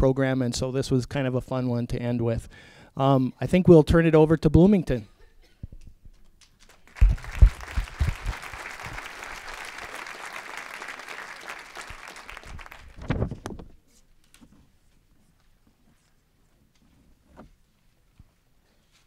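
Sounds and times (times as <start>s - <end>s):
audience applauding: 6.7s - 13.1s.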